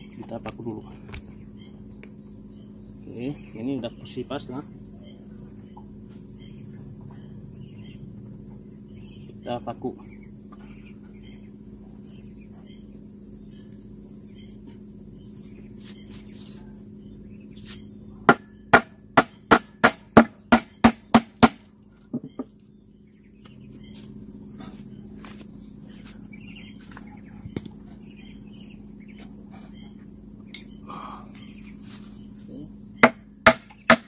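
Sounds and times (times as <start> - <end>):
insects chirring: 0.0 - 34.0
hammer striking nail into wood: 18.3 - 21.6, 33.0 - 34.0.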